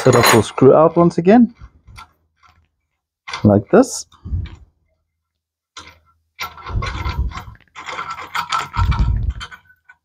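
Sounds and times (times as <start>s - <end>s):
metal scraping: 5.8s - 10.0s
small metal clicks: 5.8s - 10.0s.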